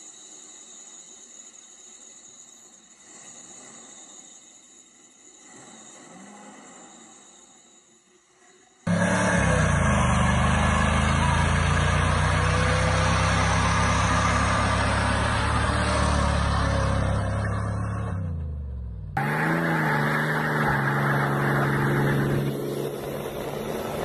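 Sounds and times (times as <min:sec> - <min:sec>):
tires spinning: 0:08.9 - 0:24.0
truck engine at high revs: 0:08.9 - 0:24.0
truck engine pulling under load: 0:08.9 - 0:24.0.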